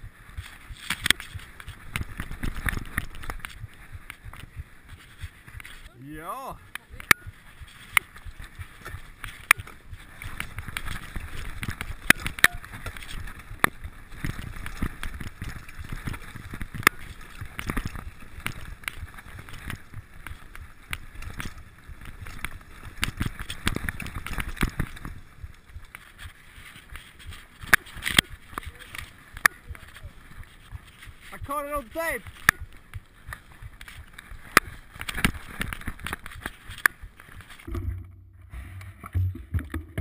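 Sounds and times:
bike tyres rumbling on dirt: 0.0 - 40.0
bike clacking over bumps: 6.7 - 37.9.

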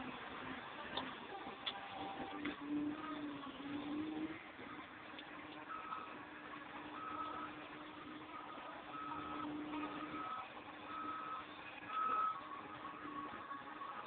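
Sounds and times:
loader engine running: 0.0 - 14.0
backup alarm beeping: 5.7 - 13.8.

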